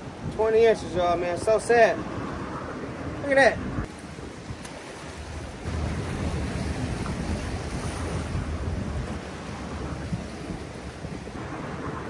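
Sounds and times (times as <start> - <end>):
wind buffeting microphone: 0.0 - 12.0
waves washing against rocks: 3.9 - 12.0.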